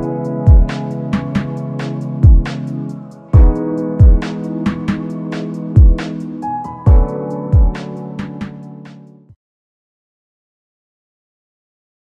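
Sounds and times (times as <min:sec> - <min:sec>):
deep drum beat: 0:00.0 - 0:06.3, 0:06.9 - 0:08.6
held chords: 0:00.0 - 0:09.3.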